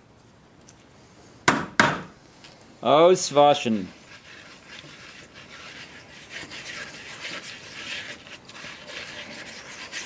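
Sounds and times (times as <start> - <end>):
brush scrubbing inside bucket: 3.5 - 10.0.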